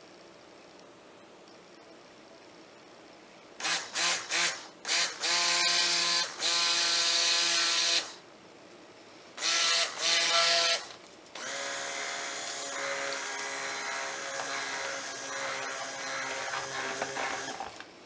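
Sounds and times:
electric stick blender whining: 3.6 - 8.2, 9.4 - 17.8.

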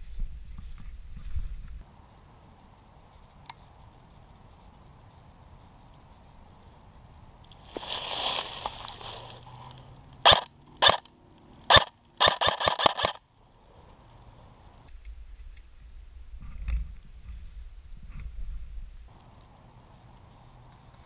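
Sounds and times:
airsoft rifle shots: 10.2 - 11.1, 11.7 - 13.2.

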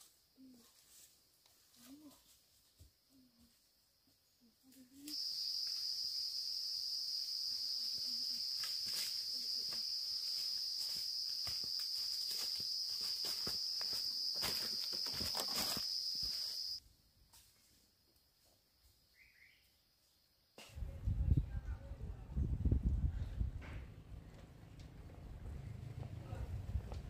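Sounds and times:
high-pitched insect buzz: 5.1 - 16.8.

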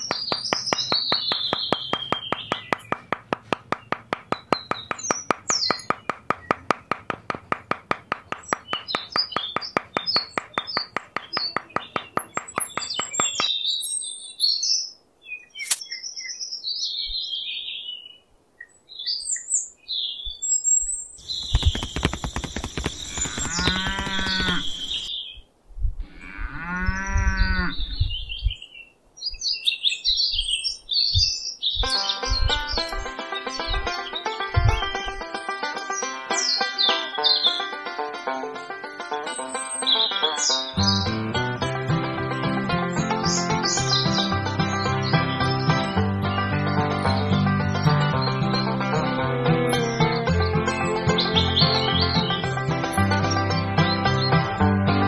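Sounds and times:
rapid even ticking: 0.0 - 13.4, 21.2 - 25.1
small birds chirping: 0.0 - 25.5, 26.8 - 37.8, 38.6 - 54.7
cow mooing: 23.5 - 24.6, 26.1 - 27.9.

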